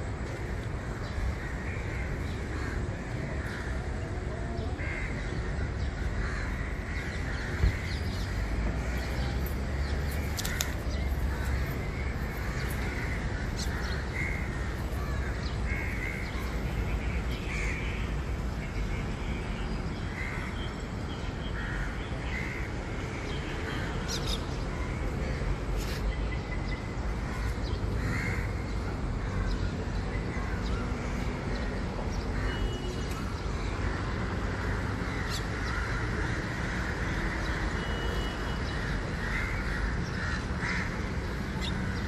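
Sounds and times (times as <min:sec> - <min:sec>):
city street noise rumble: 0:00.0 - 0:42.0
crows cawing: 0:01.3 - 0:03.9, 0:04.8 - 0:09.1, 0:10.4 - 0:16.6, 0:17.5 - 0:18.0, 0:21.6 - 0:22.7, 0:27.2 - 0:29.6, 0:33.8 - 0:42.0.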